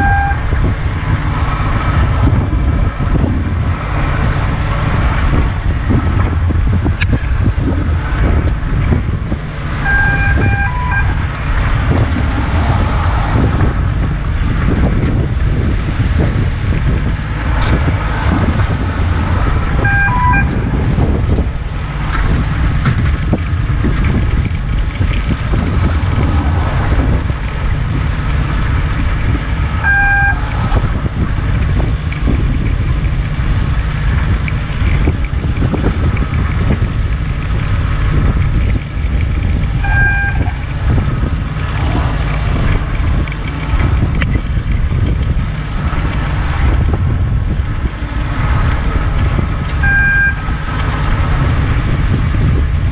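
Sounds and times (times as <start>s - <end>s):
short electronic beep: 0.0s - 0.4s, 9.9s - 11.2s, 19.8s - 20.6s, 29.8s - 30.4s, 39.8s - 40.4s, 49.8s - 50.4s
boat engine low rumble: 0.0s - 52.9s
wind noise on microphone: 0.0s - 52.9s.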